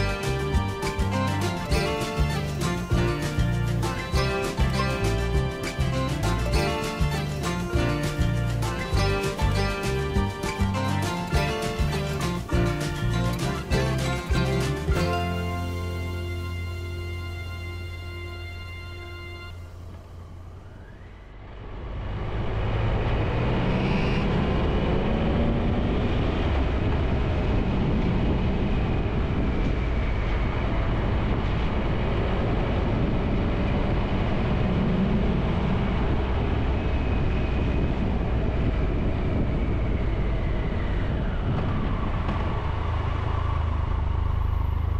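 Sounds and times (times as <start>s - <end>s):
motorcycle engine: 0.0s - 29.2s
road noise: 0.0s - 44.9s.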